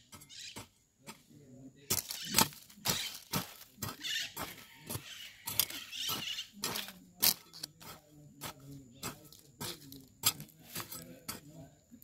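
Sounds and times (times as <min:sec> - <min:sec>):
hoe chopping into soil: 0:01.9 - 0:08.6.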